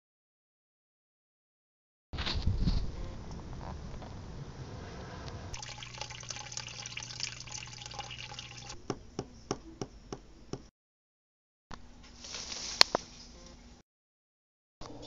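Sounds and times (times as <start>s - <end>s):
crackling water trickle: 5.6s - 8.8s
water drips: 5.6s - 8.8s.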